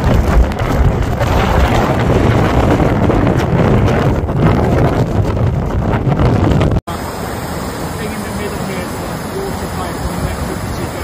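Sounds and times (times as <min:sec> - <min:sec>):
wind buffeting microphone: 0:00.0 - 0:11.0
rushing floodwater: 0:06.9 - 0:11.0
waves breaking on shore: 0:06.9 - 0:11.0.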